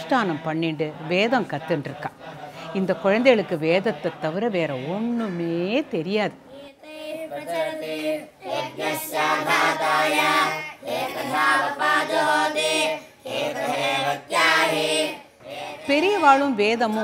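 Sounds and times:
boys chanting in unison: 6.8s - 15.9s.

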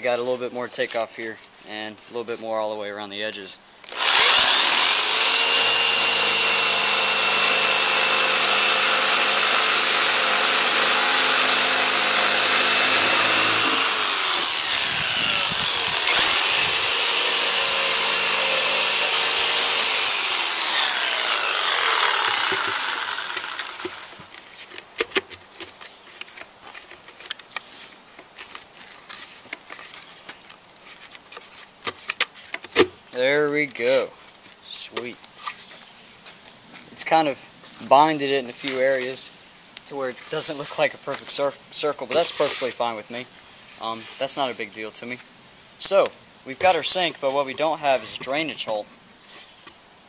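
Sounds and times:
jigsaw cutting board: 3.9s - 24.3s.

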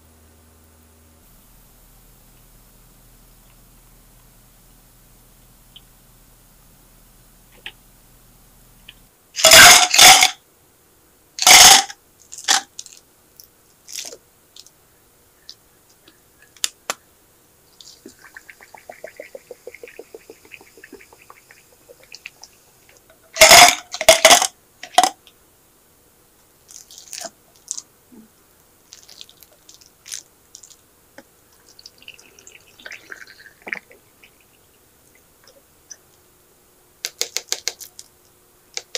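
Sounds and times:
tea pouring: 17.8s - 23.1s, 28.9s - 30.8s, 31.6s - 35.6s
soda water pouring and fizzing: 17.8s - 23.5s, 28.9s - 30.8s, 31.6s - 35.3s.

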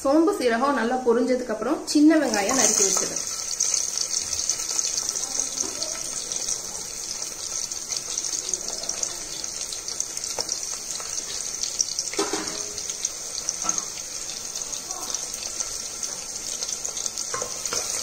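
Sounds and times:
shallots sizzling in hot oil: 1.9s - 18.0s.

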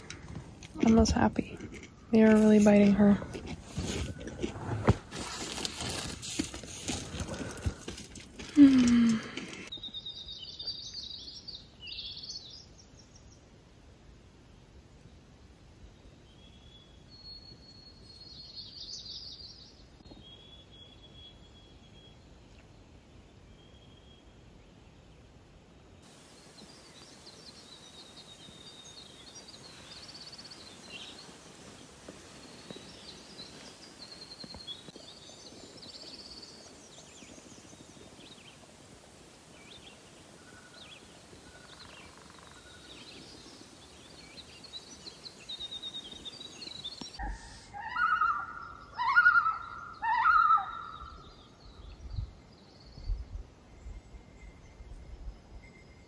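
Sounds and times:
faint hiss: 22.2s - 47.8s
birds chirping and singing: 39.6s - 53.0s
loud bird call: 47.2s - 51.3s.

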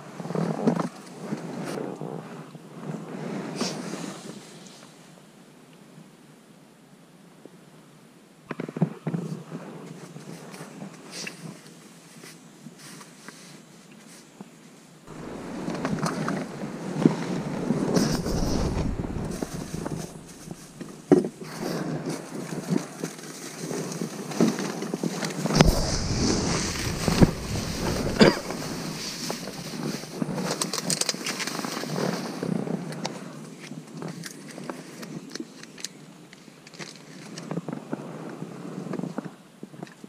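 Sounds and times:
clothing rubbing on microphone: 15.1s - 21.0s, 25.5s - 30.1s.

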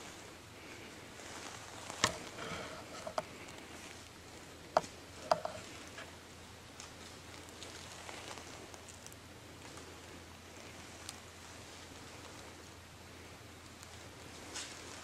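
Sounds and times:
faint rustle of woods: 0.0s - 15.0s
sharp woody knocks and ticks: 4.8s - 5.6s.

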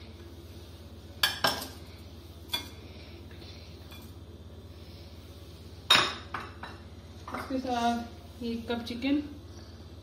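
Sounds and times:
kitchenware clinking: 1.2s - 1.8s, 5.9s - 8.0s.

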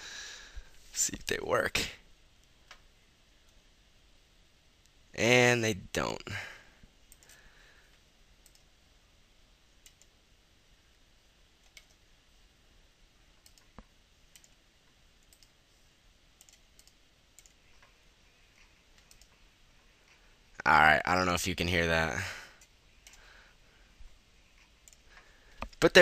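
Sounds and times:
faint computer mouse clicks: 8.4s - 8.7s, 13.4s - 14.6s, 19.0s - 19.4s.

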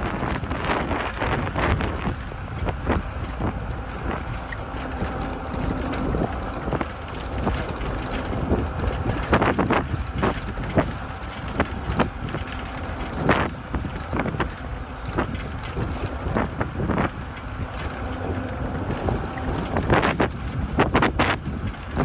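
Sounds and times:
knocks and rattles: 0.0s - 22.0s
steady low rumble: 0.0s - 22.0s
wind buffeting microphone: 0.0s - 22.0s.

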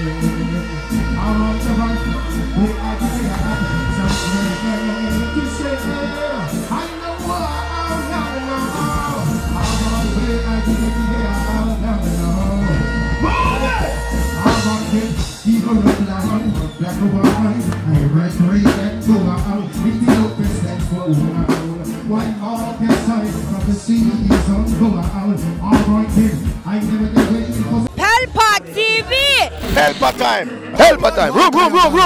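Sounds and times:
man singing into microphone: 0.0s - 27.9s
live reggae music: 0.0s - 32.0s.

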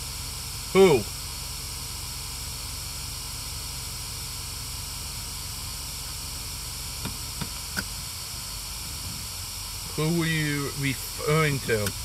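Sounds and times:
static hiss: 4.7s - 12.0s.

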